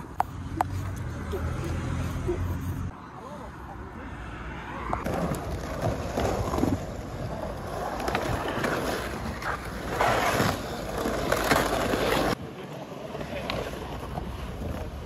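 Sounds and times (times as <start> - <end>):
skateboard wheels rolling on concrete: 4.2 - 15.0.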